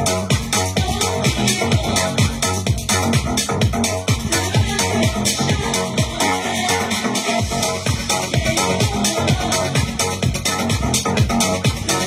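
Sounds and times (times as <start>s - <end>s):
kick drum: 0.0s - 6.3s, 7.4s - 12.0s
electronic dance music: 0.0s - 12.0s
ticking hi-hat: 0.0s - 12.0s.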